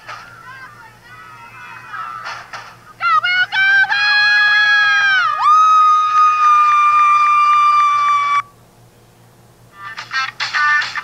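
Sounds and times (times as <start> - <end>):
person screaming cheer: 4.0 - 8.4.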